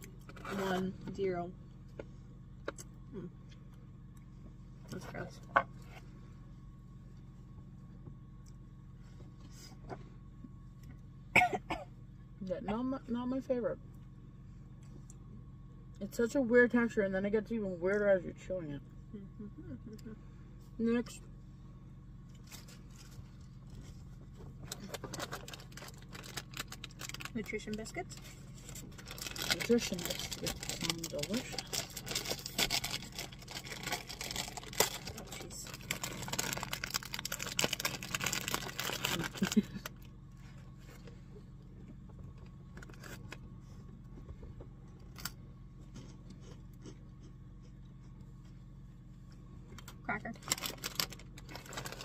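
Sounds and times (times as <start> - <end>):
low hum: 0.0 - 52.0
snack packaging crinkling: 24.7 - 27.8, 28.4 - 40.0, 50.3 - 52.0.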